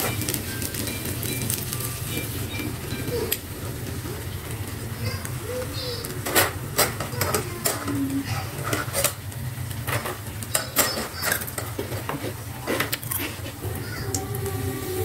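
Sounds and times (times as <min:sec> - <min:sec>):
metal utensils clinking on wok: 0:09.8 - 0:13.4.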